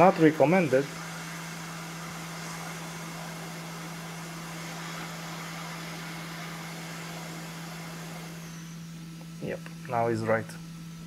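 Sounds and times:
hot air station hissing: 0.0s - 10.3s.

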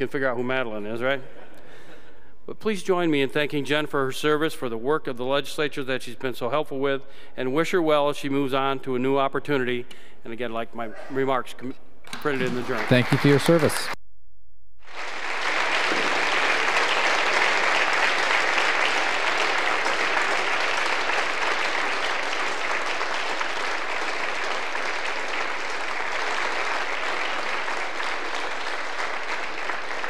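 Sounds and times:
audience applause: 12.2s - 14.0s, 14.8s - 30.0s.

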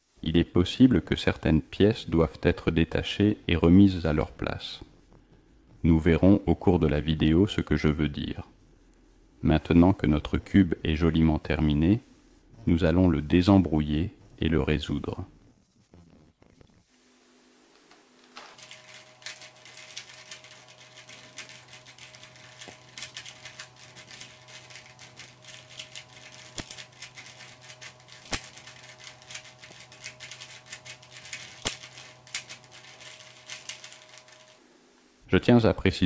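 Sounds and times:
faint steady hum: 0.0s - 36.0s
puzzle cube clicking: 18.6s - 34.3s.

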